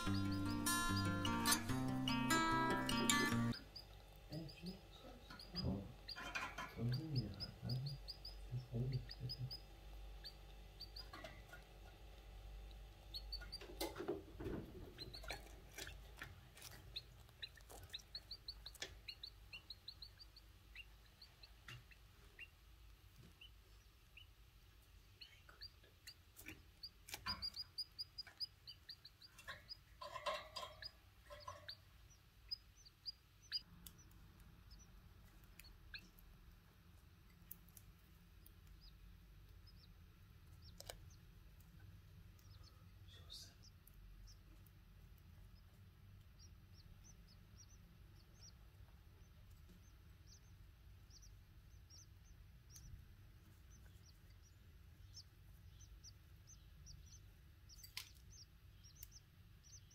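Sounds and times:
nestlings begging cheeps: 0.0 - 11.2, 15.0 - 22.6, 25.2 - 34.9, 42.4 - 44.4, 46.2 - 59.9.

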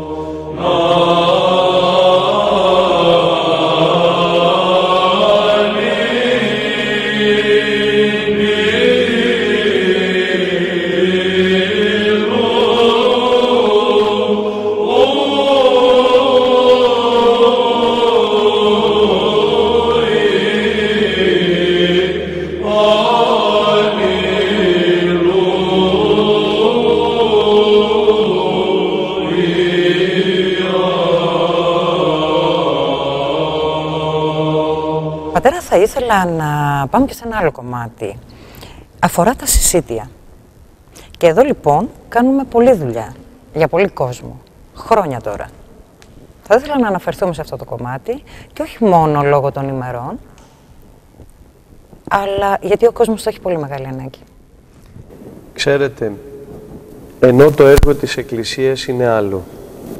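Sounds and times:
chant singing: 0.0 - 36.4.

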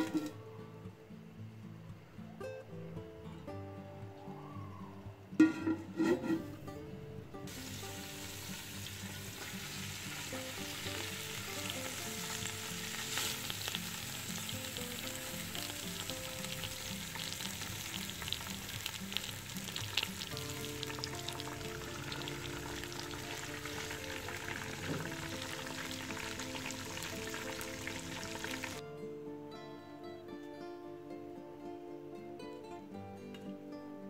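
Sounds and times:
oil sizzling in a pot: 0.0 - 0.4, 7.5 - 28.8
background music: 0.0 - 34.0
small crackles: 8.7 - 28.8.

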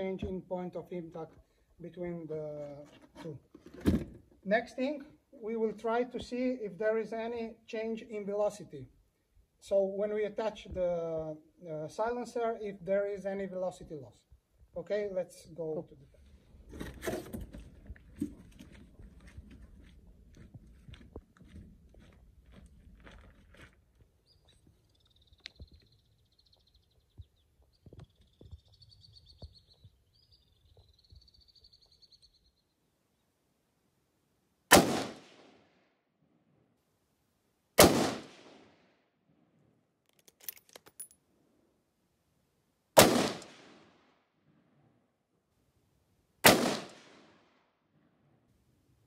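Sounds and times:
rifle shots: 34.7 - 35.6, 37.8 - 38.7, 43.0 - 44.0, 46.4 - 47.4.

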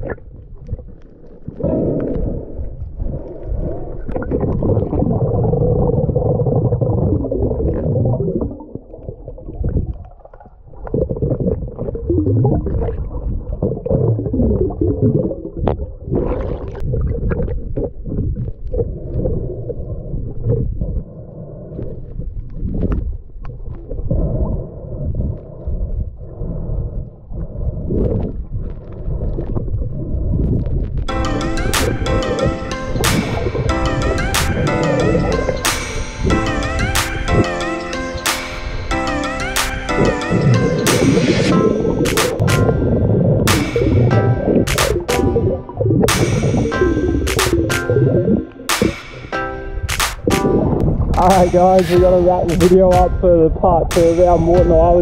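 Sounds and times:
underwater clicks: 0.0 - 21.0, 30.4 - 36.4, 39.5 - 55.0
underwater rumble of moving water: 0.0 - 31.1, 41.4 - 48.9, 50.5 - 55.0
water gurgling: 0.0 - 36.6, 37.2 - 55.0.

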